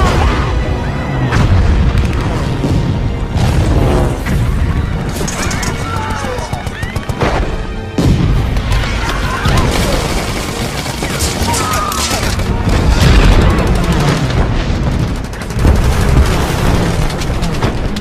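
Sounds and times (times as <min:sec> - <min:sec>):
explosions: 0:01.3 - 0:05.3
gunfire: 0:05.1 - 0:18.0.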